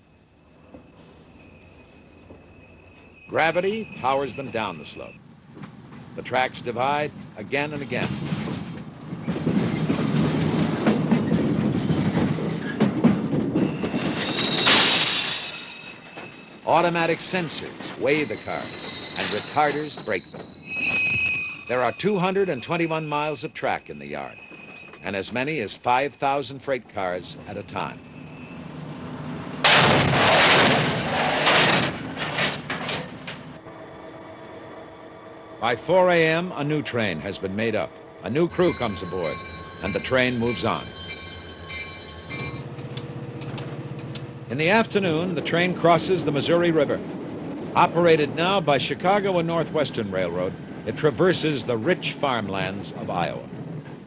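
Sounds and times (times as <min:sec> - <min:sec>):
train wheels rumbling over rail joints: 0:00.6 - 0:25.8, 0:26.4 - 0:54.0
freight cars coupling crash: 0:11.7 - 0:16.6, 0:29.5 - 0:33.6
steel wheel squeal with hiss: 0:13.6 - 0:16.6, 0:18.1 - 0:25.0
clanking couplers and car bodies: 0:28.8 - 0:33.6.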